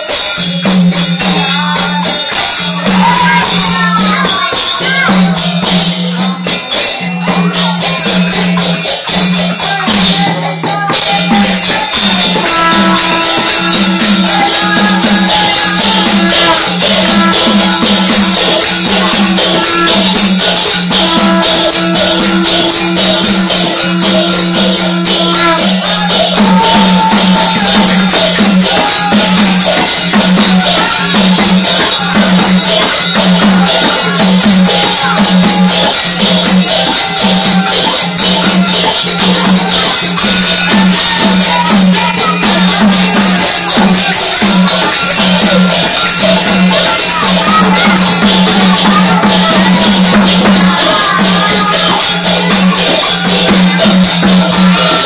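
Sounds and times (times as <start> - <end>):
jingling rattling percussion: 0.0 - 55.0.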